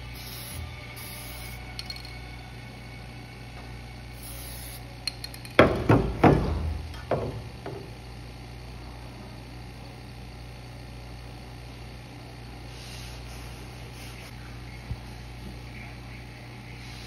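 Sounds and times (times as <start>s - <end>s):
aerosol spray can hissing: 0.0s - 2.0s, 4.2s - 4.9s
loud knocks: 5.6s - 7.9s.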